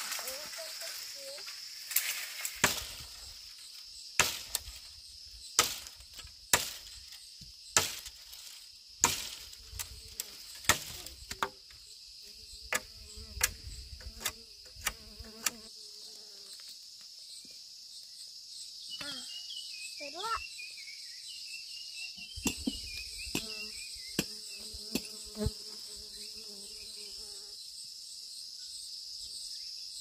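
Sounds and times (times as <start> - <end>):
high-pitched insect buzz: 0.0 - 30.0.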